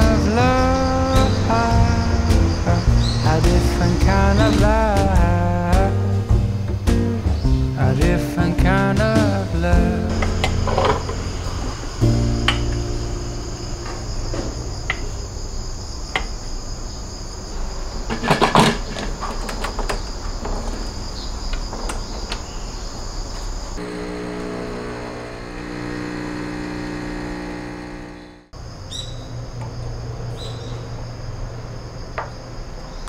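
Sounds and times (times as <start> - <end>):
insects chirring: 0.0 - 6.0, 9.8 - 33.0
espresso machine pump humming: 23.8 - 28.5.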